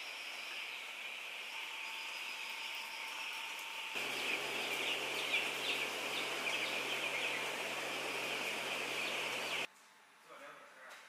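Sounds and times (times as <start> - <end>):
low machine hum: 0.2 - 9.7
chickens cheeping: 4.0 - 9.7.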